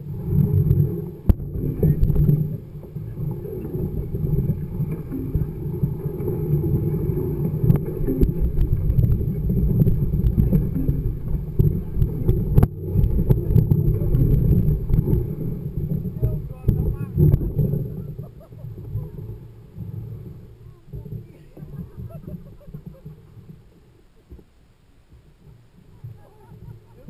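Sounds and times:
bike tyre rumbling on gravel: 0:00.0 - 0:23.6
wind buffeting microphone: 0:00.0 - 0:23.7
sharp clicks and knocks: 0:00.3 - 0:18.0.

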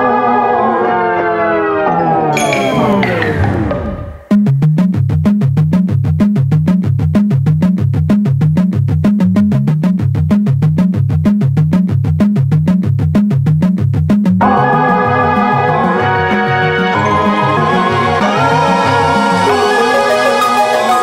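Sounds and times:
steady electronic beat: 0:02.4 - 0:04.4
synthesizer bass riff: 0:02.4 - 0:04.4.

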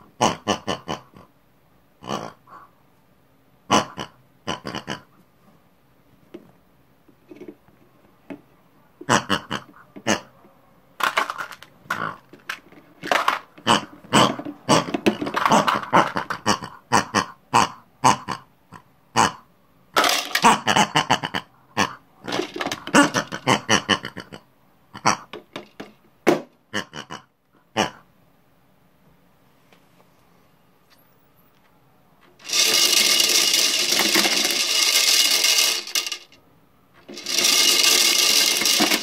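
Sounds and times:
person making pig noises: 0:00.0 - 0:01.4, 0:02.0 - 0:02.8, 0:03.6 - 0:05.2, 0:09.0 - 0:10.3, 0:11.9 - 0:12.3, 0:13.6 - 0:19.5, 0:20.3 - 0:25.4, 0:26.7 - 0:28.1
mints rattling into toy drum: 0:11.0 - 0:16.4, 0:20.0 - 0:20.7, 0:22.2 - 0:23.5, 0:32.4 - 0:36.4, 0:37.0 - 0:39.0.

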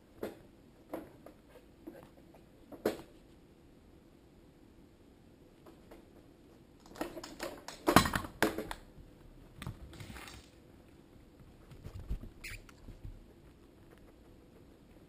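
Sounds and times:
rustling: 0:09.2 - 0:15.0
short high squeak: 0:12.4 - 0:12.7.

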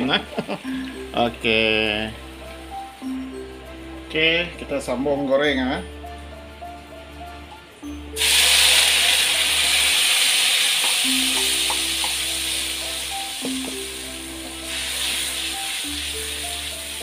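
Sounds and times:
background music: 0:00.0 - 0:17.0
spice paste sizzling in oil: 0:08.2 - 0:17.0.

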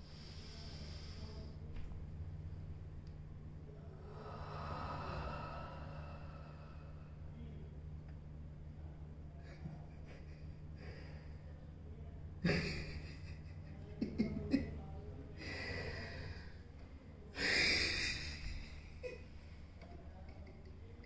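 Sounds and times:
steady low hum: 0:00.0 - 0:21.0
man breathing heavily: 0:04.0 - 0:07.6, 0:15.4 - 0:16.6.

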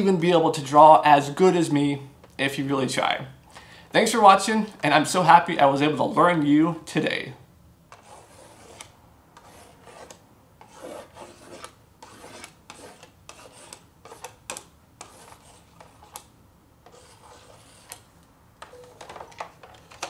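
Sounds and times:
stylus scratching drawing board: 0:07.9 - 0:18.1.

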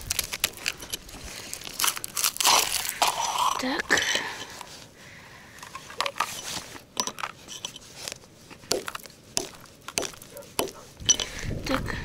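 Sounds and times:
ice and snow crunching: 0:00.0 - 0:04.9, 0:07.4 - 0:11.5.

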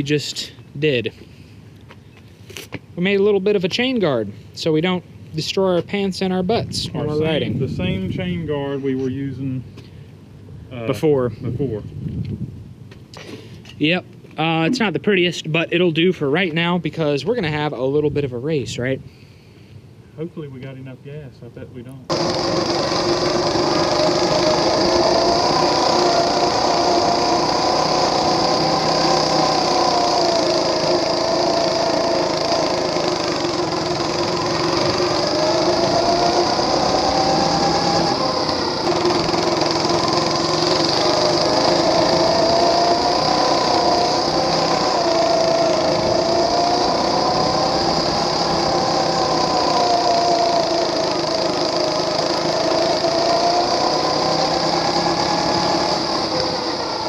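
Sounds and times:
small engine running: 0:22.1 - 0:57.0.

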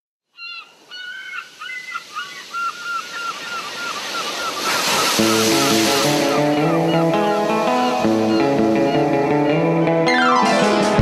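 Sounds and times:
short repeated bird calls: 0:00.3 - 0:09.0
ocean surf washing in: 0:00.7 - 0:10.0.

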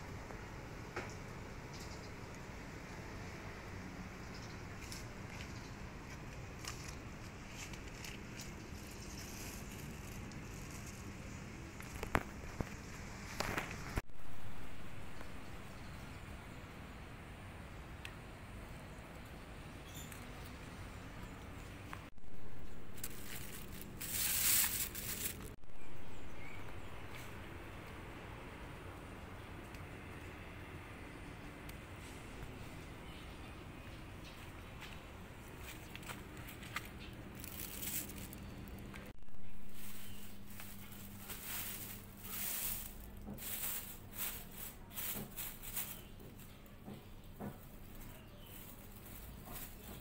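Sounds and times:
plastic bag crinkling: 0:22.6 - 0:25.6, 0:37.2 - 0:38.9, 0:39.6 - 0:46.1.

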